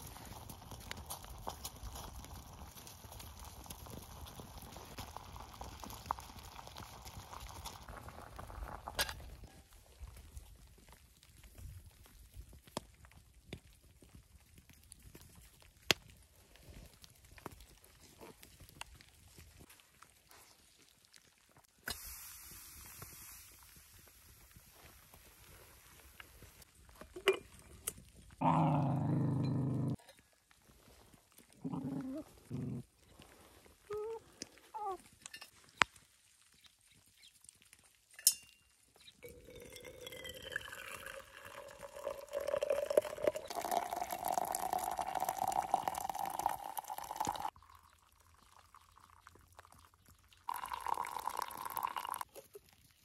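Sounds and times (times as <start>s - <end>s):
hot water pouring into glass: 3.4s - 9.1s, 39.2s - 52.4s.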